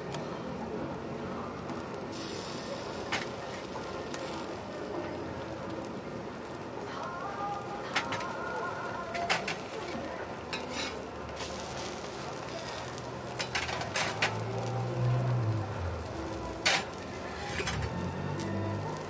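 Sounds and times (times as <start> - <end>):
food sizzling: 7.1 - 19.0
metal spatula scraping griddle: 10.5 - 11.9, 12.6 - 14.4, 16.6 - 18.0.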